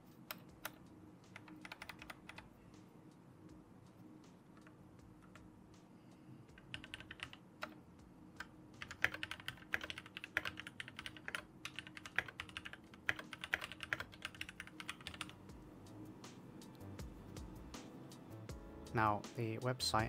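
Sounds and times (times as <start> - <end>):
mechanical keyboard typing: 0.3 - 2.5, 6.6 - 7.8, 8.4 - 15.4.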